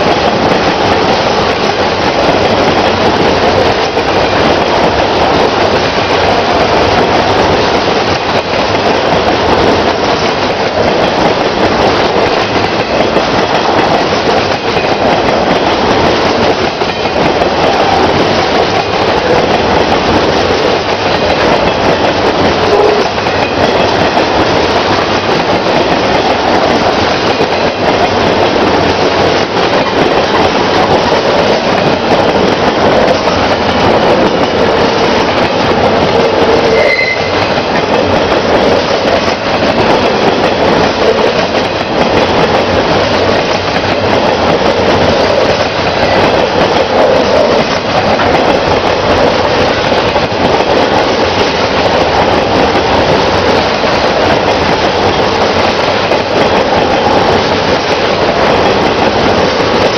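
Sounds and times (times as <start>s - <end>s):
freight train wheels rumbling: 0.0s - 59.9s
wheel squeal: 36.6s - 37.5s.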